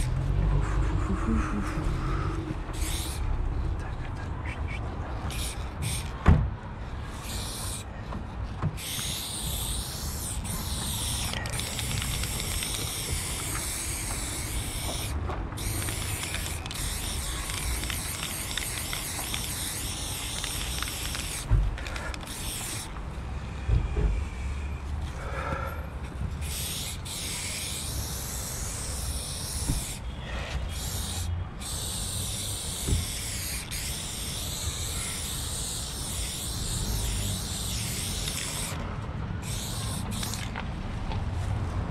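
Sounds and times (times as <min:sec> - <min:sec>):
spray paint can hissing: 0:00.0 - 0:03.3, 0:04.4 - 0:06.2, 0:07.1 - 0:07.9, 0:08.8 - 0:23.0, 0:26.4 - 0:30.1, 0:30.7 - 0:38.8, 0:39.4 - 0:40.6.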